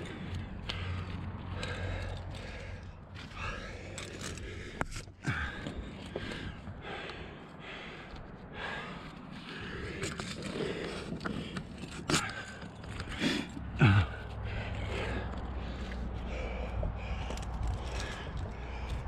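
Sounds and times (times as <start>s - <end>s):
person breathing hard: 0.0s - 19.0s
person grunting: 13.8s - 14.3s.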